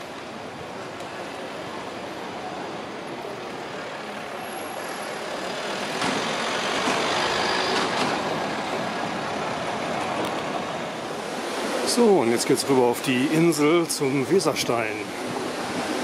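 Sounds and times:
heavy vehicle passing: 4.2 - 12.2.

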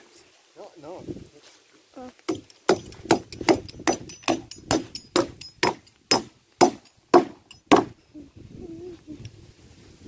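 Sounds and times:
hammer striking wood: 2.3 - 8.0.

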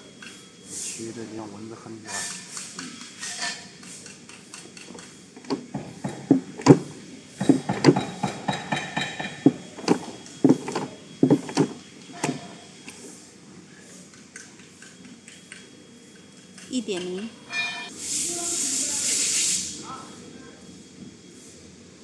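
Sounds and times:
welding machine clacking: 3.9 - 11.7.

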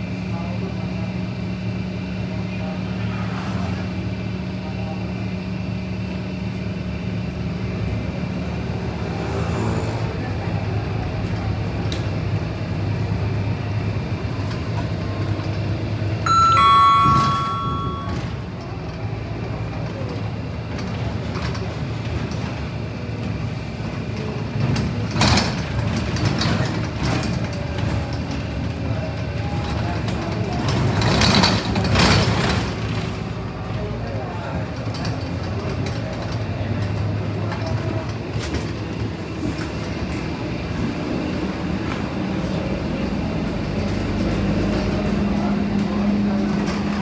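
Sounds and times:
bus engine running: 0.0 - 17.0, 18.2 - 47.0
two-note electronic chime: 16.3 - 18.6.

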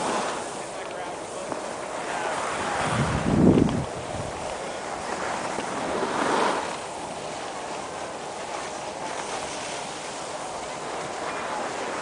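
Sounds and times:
skis sliding over snow: 0.0 - 12.0
wind on microphone: 2.2 - 6.8.

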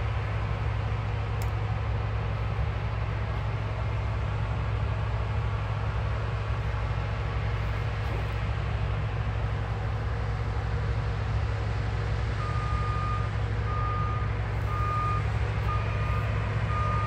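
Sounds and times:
combine harvester droning: 0.0 - 17.0
reversing alarm beeps: 12.4 - 17.0.

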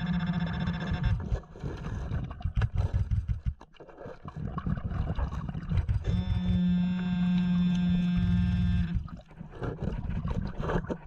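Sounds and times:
muffled underwater thumps: 2.1 - 3.7, 4.5 - 6.7, 7.5 - 11.0.

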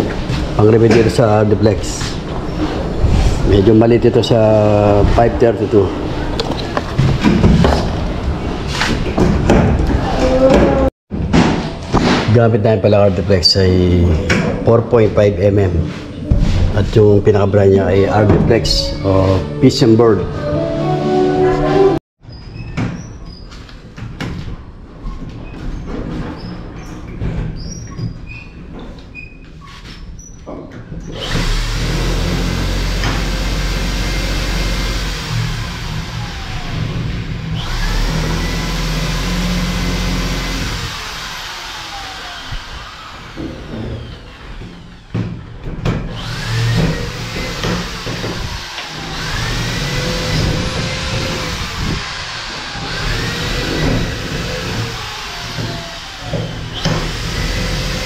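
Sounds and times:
power tool motor running: 31.2 - 45.1, 46.1 - 58.0.

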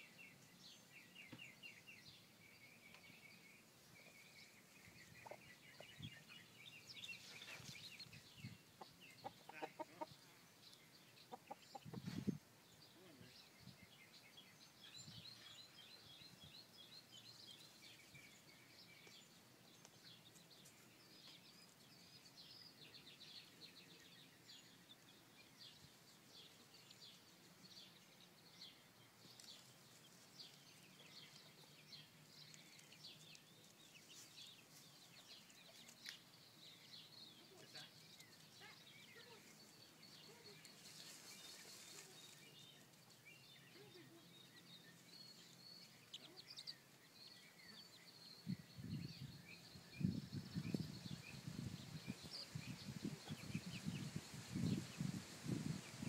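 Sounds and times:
hens clucking softly: 8.8 - 10.2, 11.3 - 12.3.

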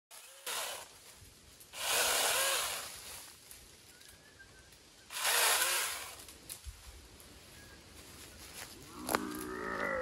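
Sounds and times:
mini chainsaw cutting branches: 0.1 - 1.0, 1.7 - 3.3, 5.1 - 6.4.

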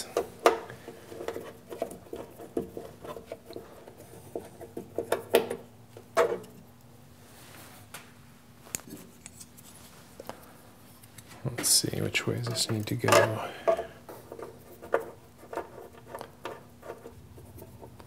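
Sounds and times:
screwdriver clicks and scrapes: 8.7 - 9.8.

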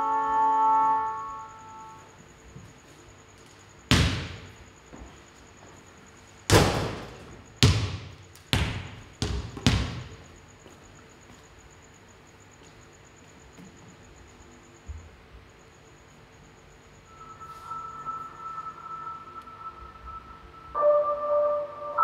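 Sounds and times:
basketball bouncing on wooden floor: 3.9 - 5.0, 6.5 - 10.3.

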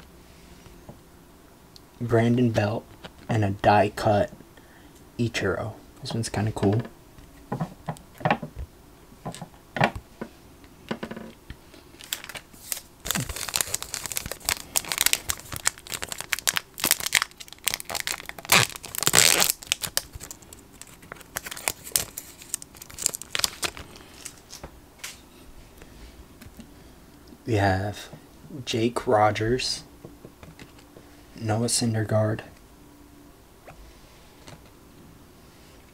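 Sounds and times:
wrapper crinkling and tearing: 12.0 - 24.6.

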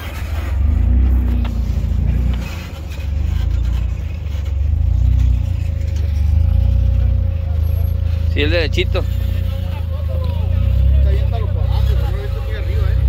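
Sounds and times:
engine running at low revs: 0.0 - 13.0.

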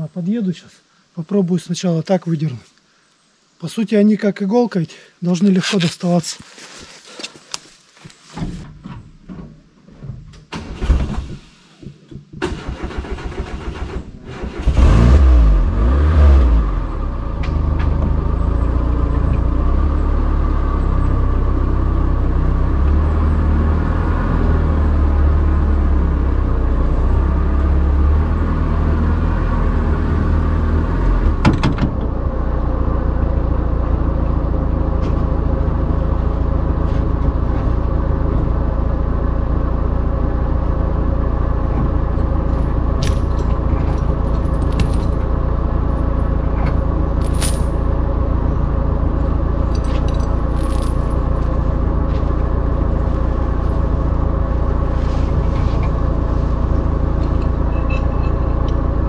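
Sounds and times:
engine cranking and running: 10.5 - 15.7, 33.0 - 59.0.

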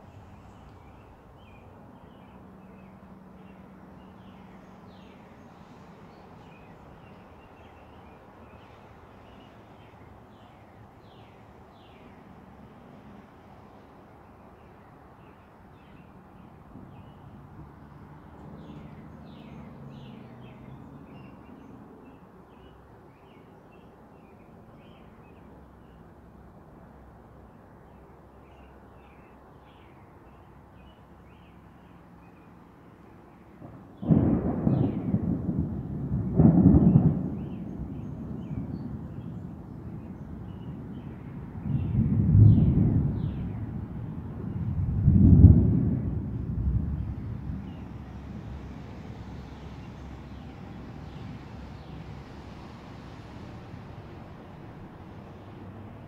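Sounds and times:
thunder clap and rumble: 33.6 - 48.6.

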